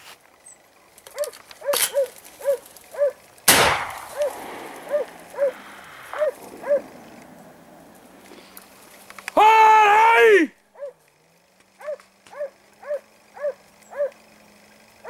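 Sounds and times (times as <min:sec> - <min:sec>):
dogs barking: 0:01.1 - 0:03.3, 0:03.9 - 0:07.5, 0:10.7 - 0:11.0, 0:11.8 - 0:14.2
gunshot with echo: 0:03.5 - 0:06.9.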